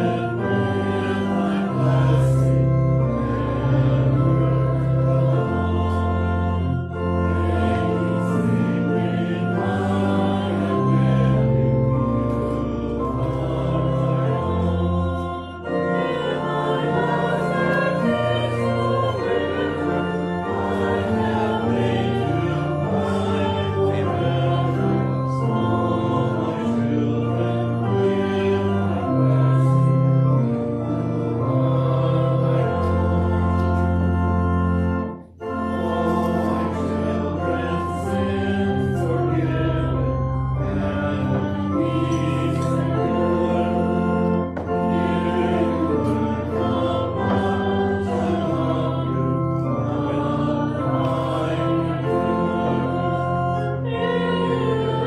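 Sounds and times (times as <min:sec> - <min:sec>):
church organ playing hymn: 0:00.0 - 0:55.0
congregation singing: 0:00.0 - 0:55.0.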